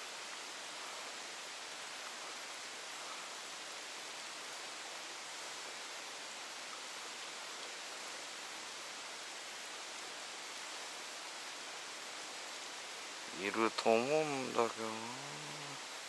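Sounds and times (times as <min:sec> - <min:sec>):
rain and trickling water: 0:00.0 - 0:16.0.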